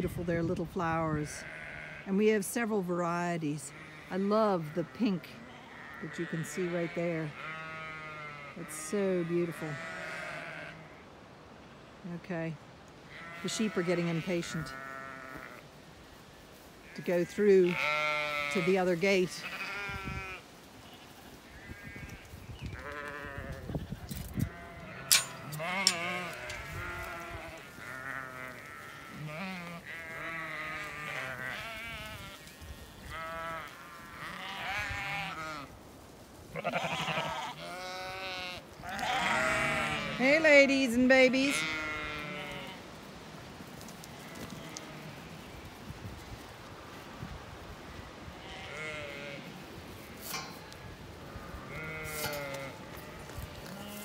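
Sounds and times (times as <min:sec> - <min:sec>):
ewes and lambs bleating: 0:01.1 - 0:02.4, 0:03.2 - 0:11.0, 0:13.0 - 0:15.7, 0:16.8 - 0:35.7, 0:36.5 - 0:43.0, 0:44.1 - 0:45.7, 0:48.3 - 0:49.6, 0:51.2 - 0:54.0.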